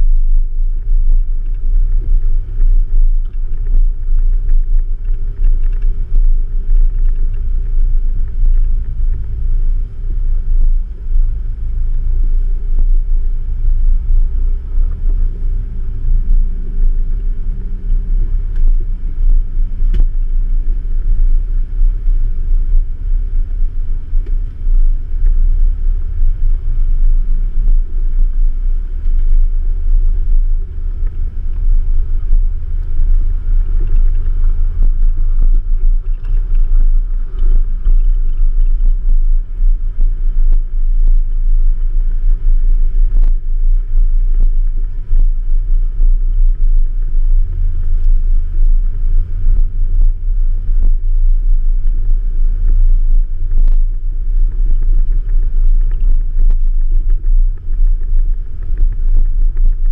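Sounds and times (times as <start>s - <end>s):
engine running: 0.0s - 59.9s.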